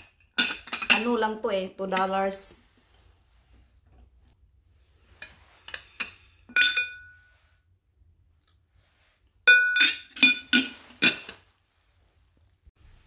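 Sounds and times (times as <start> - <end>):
glass candle holders clinking: 0.0 - 2.4, 5.2 - 7.3, 9.4 - 11.4.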